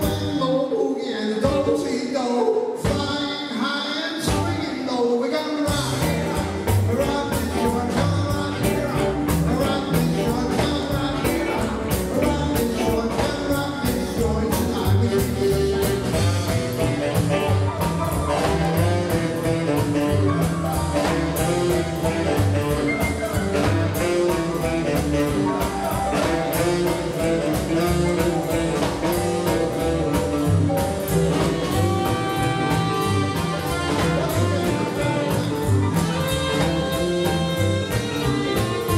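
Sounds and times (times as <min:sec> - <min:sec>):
drum kit beat: 0:00.0 - 0:00.4, 0:02.8 - 0:03.3, 0:04.2 - 0:04.8, 0:05.6 - 0:38.9
man singing: 0:00.0 - 0:38.9
rock and roll band playing: 0:00.0 - 0:38.9
saxophone: 0:05.6 - 0:38.9
electric guitar: 0:05.7 - 0:38.9.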